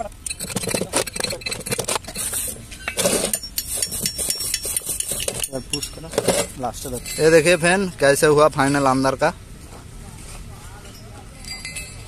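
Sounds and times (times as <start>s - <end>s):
chipping tool clinking on metal: 3.2s - 7.6s.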